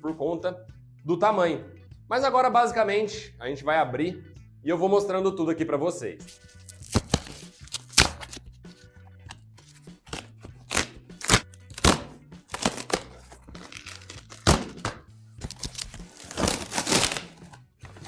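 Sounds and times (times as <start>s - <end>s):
background music with bassline: 0.0s - 18.0s
cardboard box tearing: 12.5s - 14.6s, 15.5s - 17.4s.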